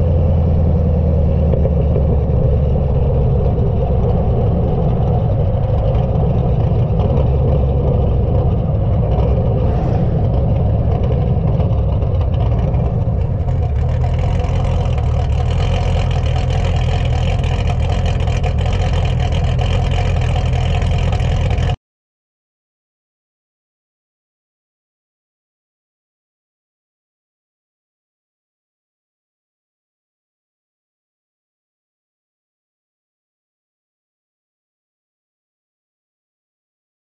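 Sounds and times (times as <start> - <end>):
car exhaust rumbling: 0.0 - 21.8.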